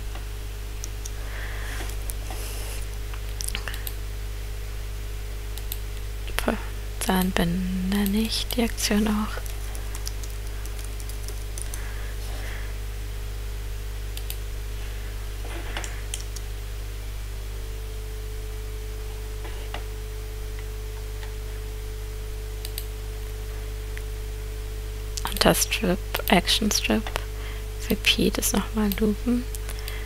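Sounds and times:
low electrical hum: 0.0 - 30.0
computer keyboard keystrokes: 9.4 - 11.8, 15.8 - 16.5.

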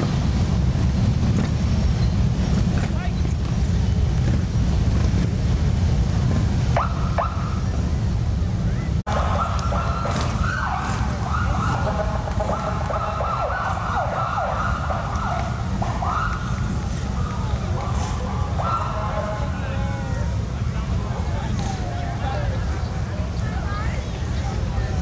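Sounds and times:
motorcycle engines rumbling: 0.0 - 25.0
police sirens wailing: 6.0 - 21.6
siren chirps: 9.1 - 16.7.

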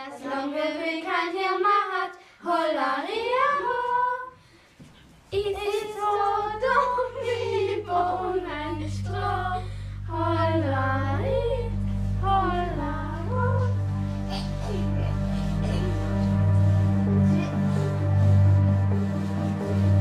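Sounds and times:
young female voices singing: 0.0 - 4.5, 5.3 - 13.8
held low accompaniment notes: 5.4 - 20.0.

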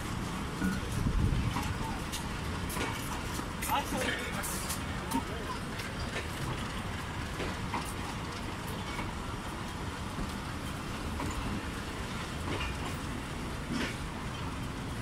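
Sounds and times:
train wheels rumbling on rail: 0.0 - 15.0
wheels clacking over rail joints: 0.0 - 15.0.

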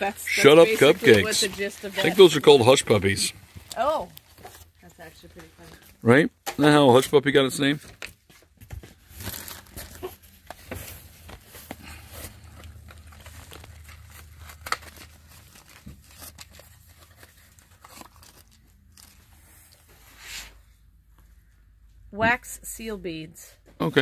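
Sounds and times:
packaging crinkling and tearing: 0.3 - 4.8, 9.0 - 19.8.

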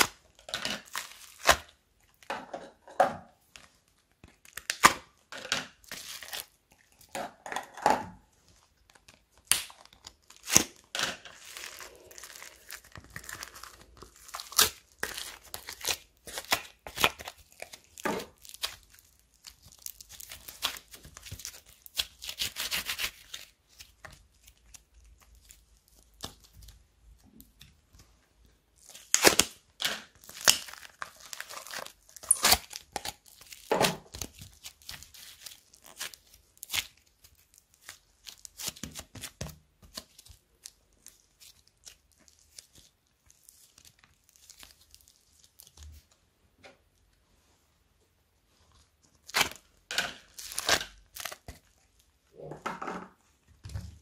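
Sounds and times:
slime crackling and popping: 8.8 - 27.8, 28.8 - 46.1, 49.2 - 52.1.

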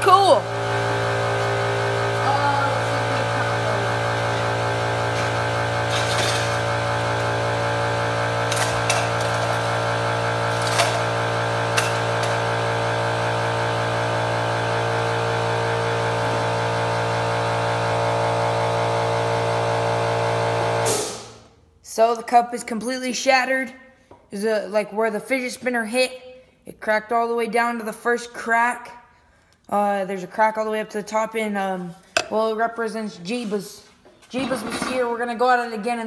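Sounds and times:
air compressor humming: 0.0 - 21.5.

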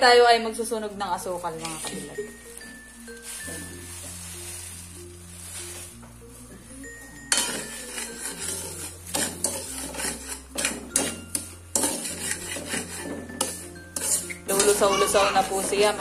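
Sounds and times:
metal spatula scraping a wok: 1.5 - 2.3, 7.3 - 16.0.

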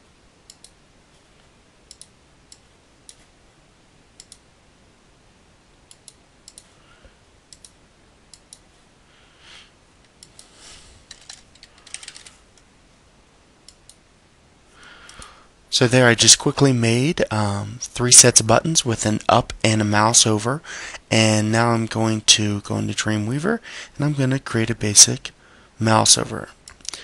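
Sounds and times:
computer mouse clicks: 0.5 - 0.8, 1.9 - 3.3, 4.2 - 4.4, 5.9 - 6.7, 7.5 - 8.7, 10.0 - 12.7, 13.6 - 14.0
keyboard keystrokes: 11.1 - 12.3.

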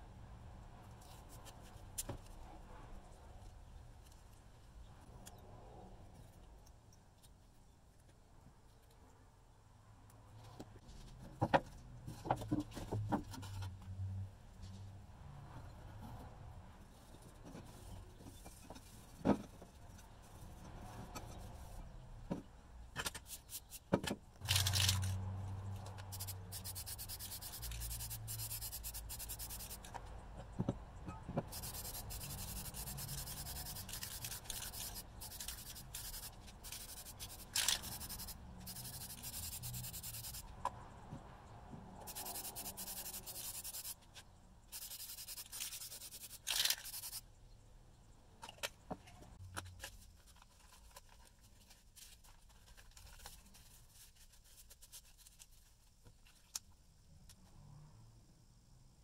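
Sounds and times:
hand scraping metal part: 23.0 - 30.0, 31.1 - 40.5, 44.8 - 47.2.

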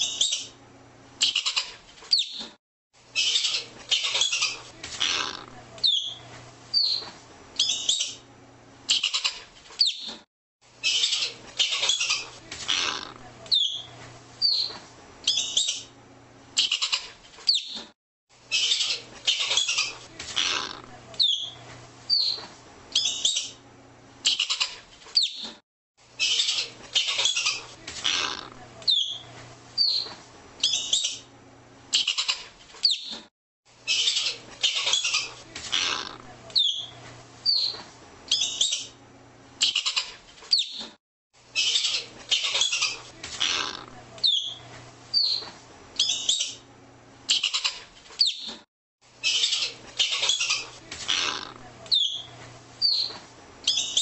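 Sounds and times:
squirrel harsh chattering: 1.2 - 1.8, 3.2 - 6.1, 8.9 - 9.4, 10.8 - 13.8, 16.6 - 17.1, 18.5 - 21.5, 24.3 - 24.8, 26.2 - 29.2, 32.0 - 32.5, 33.9 - 36.8, 39.6 - 40.2, 41.6 - 44.5, 47.3 - 47.8, 49.2 - 52.2
squirrel high chirps: 5.8 - 8.2, 13.5 - 15.9, 21.2 - 22.4, 28.8 - 31.2, 36.5 - 38.9, 44.2 - 46.6, 51.9 - 54.0.

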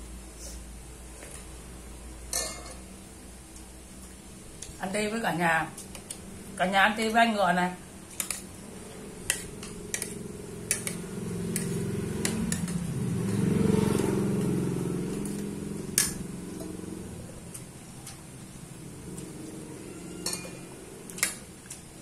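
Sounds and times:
low hum: 8.3 - 22.0
metal spoon scraping a plate: 19.8 - 21.4.

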